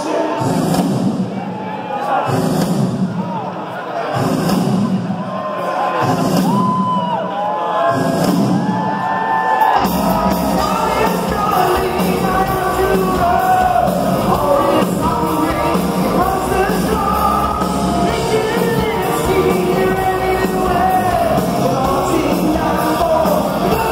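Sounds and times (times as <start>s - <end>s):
rock band playing: 9.6s - 23.9s
person singing: 9.8s - 23.9s.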